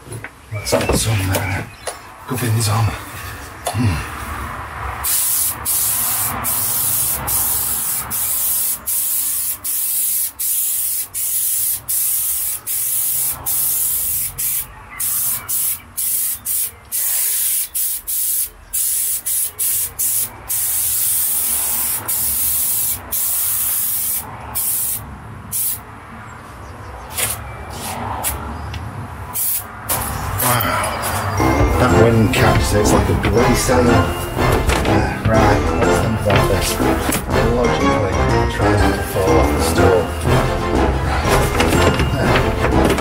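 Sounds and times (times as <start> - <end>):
aerosol can hissing: 5.0 - 25.0, 25.6 - 25.8, 29.4 - 29.7.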